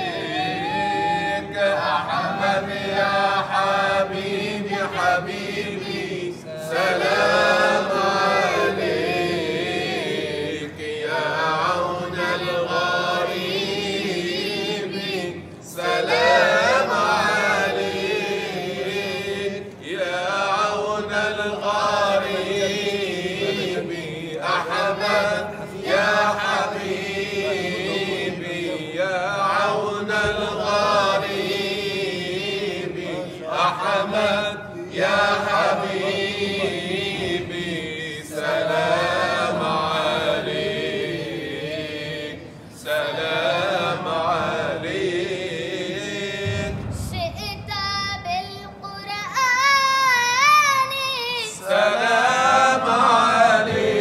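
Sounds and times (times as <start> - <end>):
men singing: 0.0 - 46.7, 51.6 - 54.0
boy singing unaccompanied: 46.9 - 52.8.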